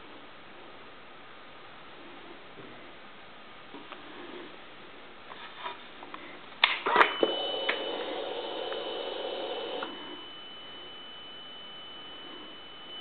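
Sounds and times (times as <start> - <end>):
thin high whine: 6.9 - 13.0
fuel pump humming: 7.2 - 10.3.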